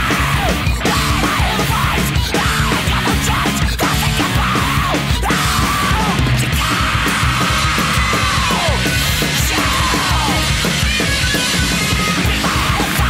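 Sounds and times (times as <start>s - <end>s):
heavy rock music: 0.0s - 13.0s
yelled vocals: 0.0s - 13.0s.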